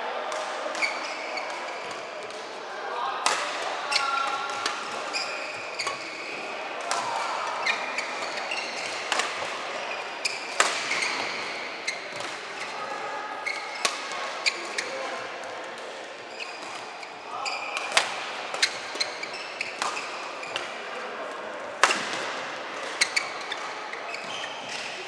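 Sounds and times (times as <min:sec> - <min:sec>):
shoes squeaking on floor: 0:00.8 - 0:01.8, 0:03.8 - 0:06.5, 0:07.1 - 0:12.8, 0:13.4 - 0:15.0, 0:16.3 - 0:18.0, 0:18.6 - 0:20.6, 0:22.9 - 0:25.0
rackets striking shuttlecock: 0:10.4 - 0:11.3, 0:17.8 - 0:20.7.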